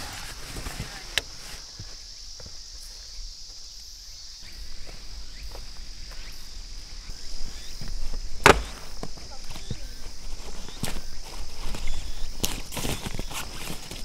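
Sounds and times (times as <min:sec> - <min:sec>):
footsteps on twigs and leaves: 0:00.0 - 0:14.0
high insect drone: 0:00.0 - 0:14.0
heavy thump of bag set down: 0:08.4 - 0:09.3.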